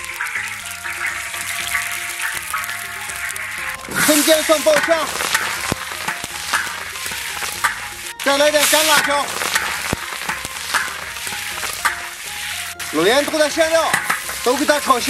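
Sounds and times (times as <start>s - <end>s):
food sizzling in hot oil: 0.0s - 15.0s
spatula scraping a wok: 0.0s - 15.0s.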